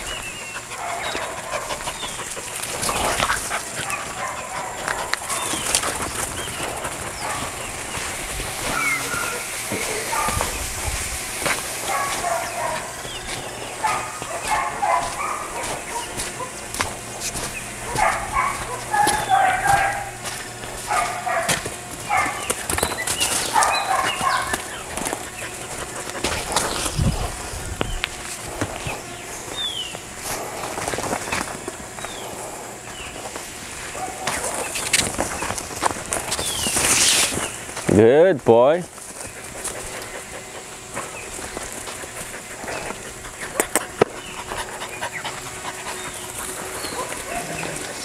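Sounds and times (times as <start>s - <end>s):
steady hiss: 5.0s - 14.4s
short animal calls: 8.6s - 10.3s.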